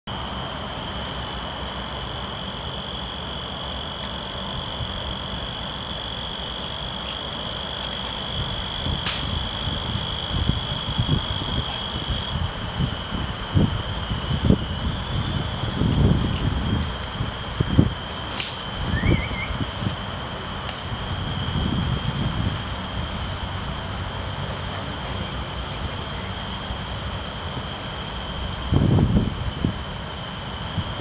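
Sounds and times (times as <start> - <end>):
insects droning: 0.1 - 31.0.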